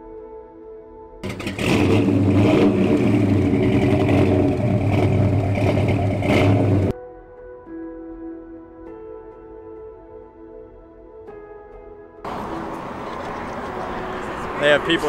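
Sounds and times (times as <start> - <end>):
soft ambient music: 0.0 - 1.2, 6.9 - 15.0
loud car engine revving: 1.2 - 6.9, 12.3 - 15.0.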